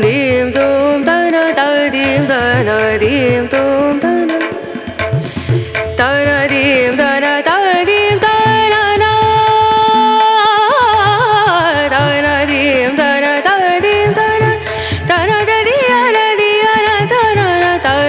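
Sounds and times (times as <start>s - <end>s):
tabla beat: 0.0s - 18.0s.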